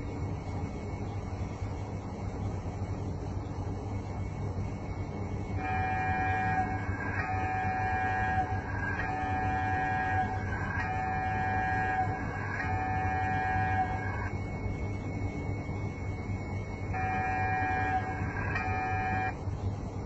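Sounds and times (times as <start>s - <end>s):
steady low hum: 0.0s - 20.0s
buzzing electronic tone pulses: 4.7s - 19.4s.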